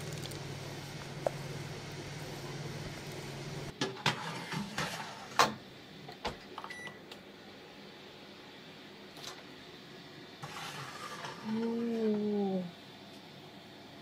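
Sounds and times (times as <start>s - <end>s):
steady low hum: 0.0s - 3.8s.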